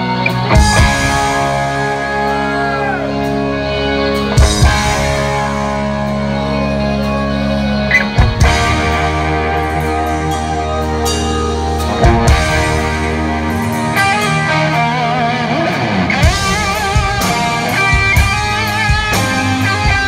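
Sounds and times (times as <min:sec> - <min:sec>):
live rock band playing: 0:00.0 - 0:20.0
full-band hits with drums: 0:00.3 - 0:02.3, 0:04.3 - 0:05.8, 0:08.0 - 0:20.0.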